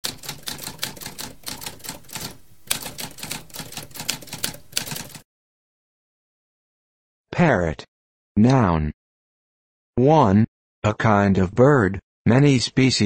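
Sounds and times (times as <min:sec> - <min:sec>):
typewriter keys clacking: 0:00.0 - 0:05.2.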